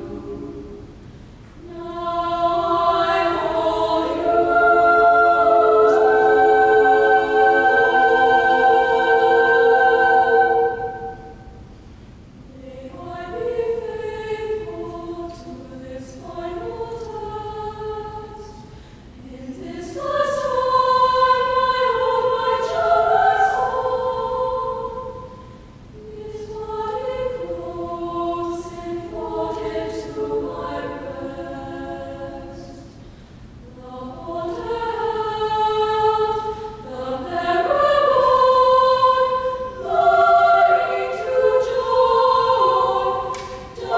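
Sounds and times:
girls' choir singing: 0.0s - 0.9s, 1.6s - 11.6s, 12.5s - 18.6s, 19.2s - 25.4s, 26.0s - 33.0s, 33.6s - 43.9s.

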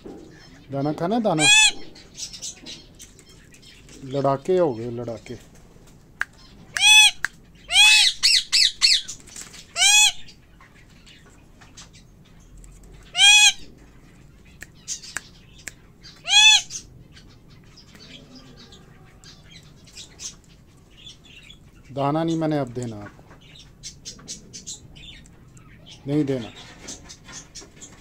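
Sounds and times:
parrot squawking: 1.3s - 2.6s, 6.4s - 9.1s, 9.7s - 10.4s, 13.0s - 13.7s, 16.0s - 17.4s.

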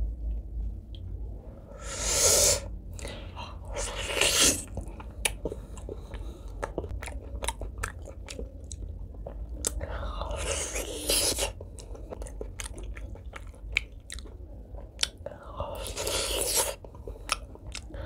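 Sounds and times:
wet open-mouthed chewing: 3.8s - 18.0s.

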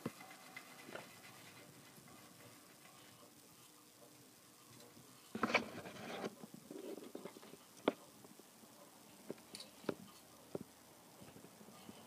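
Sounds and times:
wooden toys rattling and scraping: 0.0s - 3.2s.

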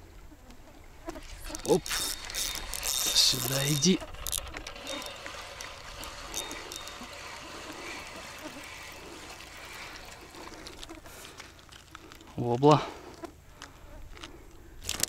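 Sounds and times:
water trickling and splashing: 0.9s - 12.4s.

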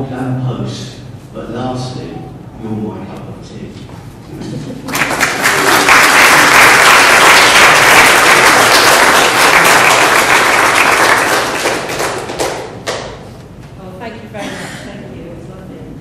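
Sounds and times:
roomful of people applauding: 4.8s - 13.2s.

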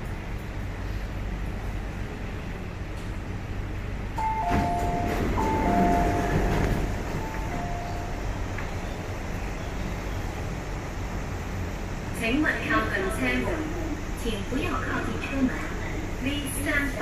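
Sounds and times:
train hum: 0.0s - 17.0s
sliding doors clunking open: 4.2s - 8.0s
two-tone door chime: 4.2s - 8.2s.

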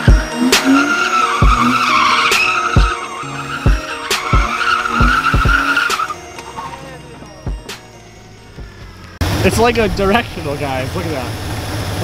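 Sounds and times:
music with thumping bass beat: 0.0s - 3.0s, 3.6s - 7.9s, 8.5s - 9.1s
tyres screeching: 0.0s - 9.2s.

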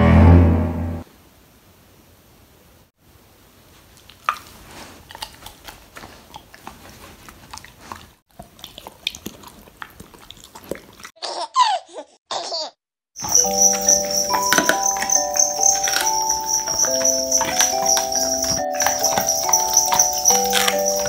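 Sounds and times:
dog grinding teeth: 4.0s - 11.2s, 13.2s - 21.0s.

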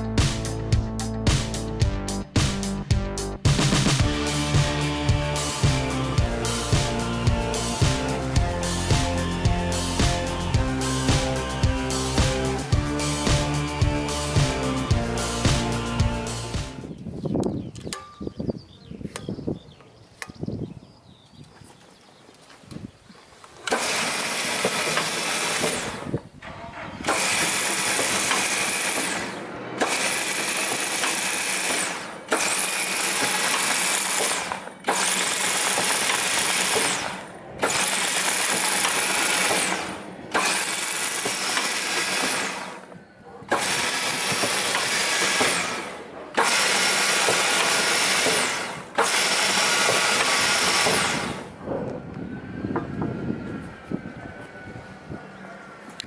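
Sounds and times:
wood drilling machine bursts: 23.6s - 51.6s.

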